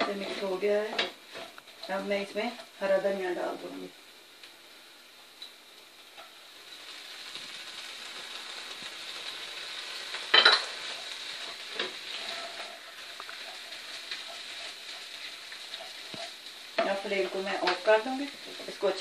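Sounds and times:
wooden spoon stirring and scraping: 0.0s - 2.0s, 10.8s - 19.0s
food sizzling in oil: 0.0s - 19.0s.

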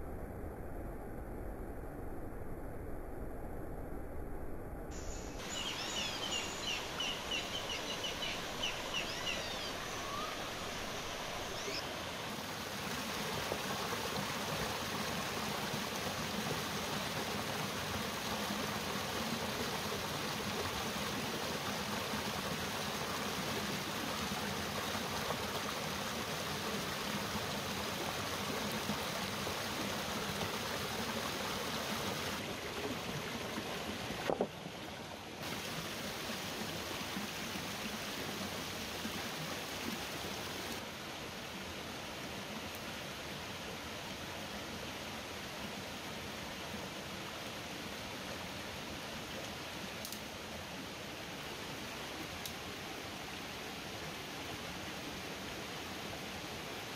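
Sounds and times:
high chirps: 5.0s - 11.9s
stream running over rocks: 5.2s - 56.9s.

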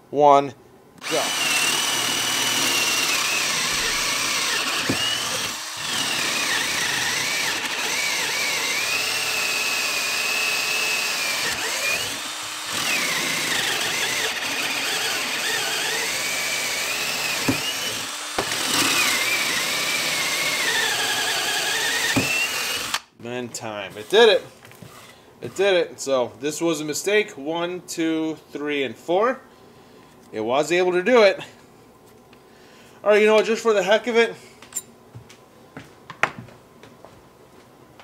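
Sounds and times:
cordless drill boring into wood: 1.0s - 23.1s.

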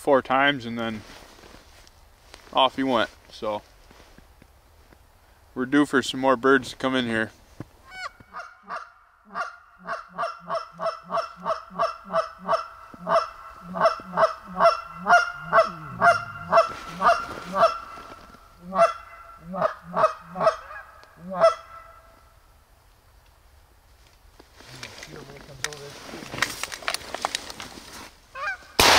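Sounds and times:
goose call honks: 7.9s - 22.2s, 28.4s - 28.8s.

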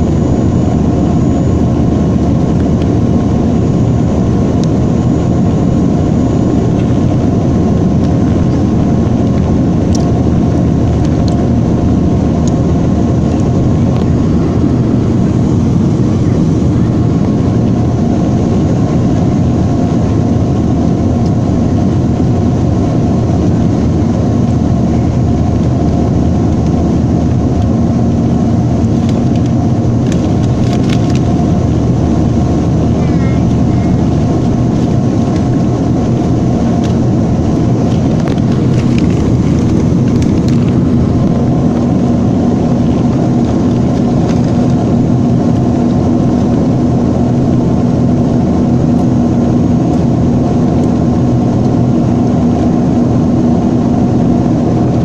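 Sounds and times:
aircraft engines droning: 0.0s - 55.0s
rushing air: 22.7s - 50.6s.

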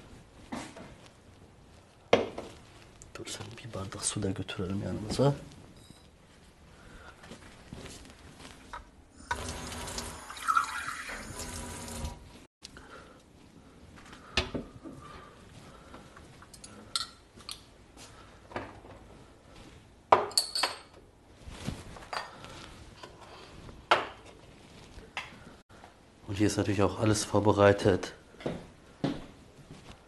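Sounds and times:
tap water running into a glass: 9.2s - 12.2s.

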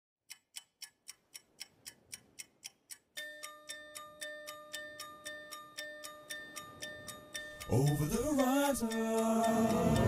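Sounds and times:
ticking beat: 0.3s - 10.0s.

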